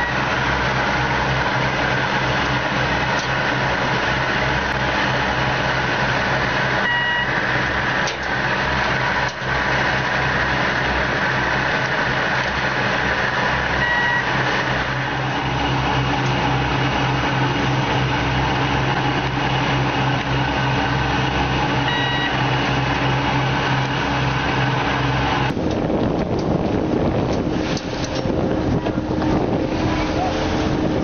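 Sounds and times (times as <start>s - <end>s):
boat engine running: 0.0s - 31.0s
short beep: 6.8s - 7.4s, 13.8s - 14.3s, 21.8s - 22.4s
wind on microphone: 25.5s - 31.0s.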